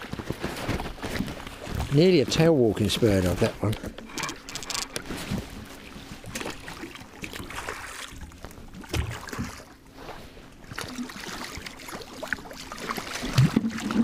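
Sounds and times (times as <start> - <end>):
water splashing against boat hull: 0.0 - 14.0.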